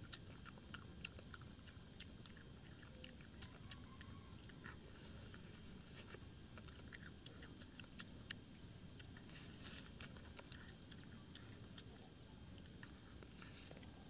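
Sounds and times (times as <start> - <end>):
chewing and lip-smacking: 0.0 - 14.0
slurp: 9.2 - 10.7.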